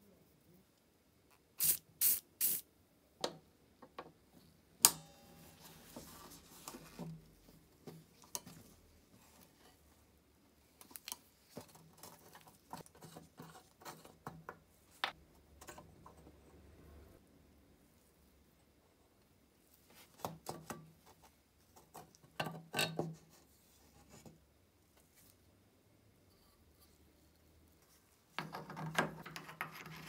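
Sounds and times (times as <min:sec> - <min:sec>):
short hissing bursts: 0:01.6 - 0:02.7.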